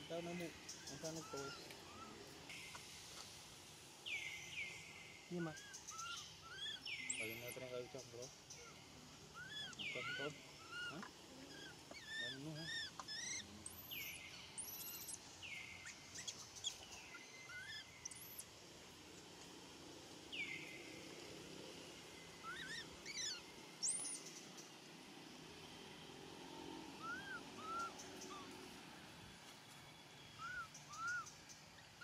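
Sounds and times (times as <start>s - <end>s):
faint outdoor background: 0.0s - 32.0s
high chirping calls: 0.1s - 2.9s, 4.0s - 18.5s, 22.3s - 24.8s, 27.0s - 28.6s, 30.2s - 32.0s.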